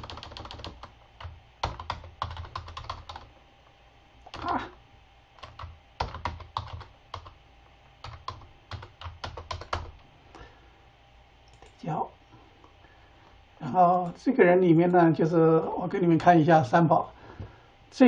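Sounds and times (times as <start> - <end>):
typing on computer keyboard: 0.0 - 3.3, 5.4 - 7.4, 8.0 - 10.0.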